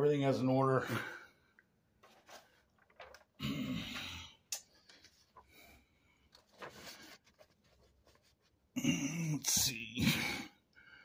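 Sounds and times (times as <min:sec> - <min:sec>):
paper rustling: 0:02.0 - 0:03.4, 0:04.6 - 0:08.6.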